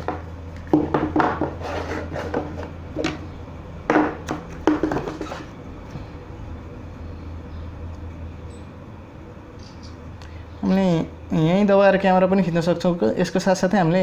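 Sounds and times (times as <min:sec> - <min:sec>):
boxes knocking and scraping on wood: 0:00.0 - 0:03.2, 0:03.9 - 0:05.5.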